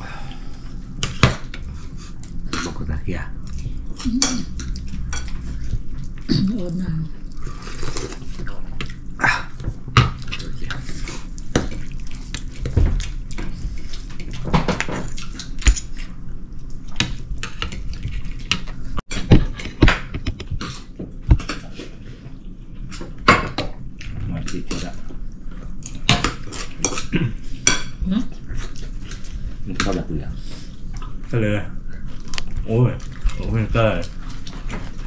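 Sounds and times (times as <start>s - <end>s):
steady low hum: 0.0s - 35.0s
dishes and utensils clinking: 4.0s - 5.7s
water dripping and running: 32.3s - 35.0s.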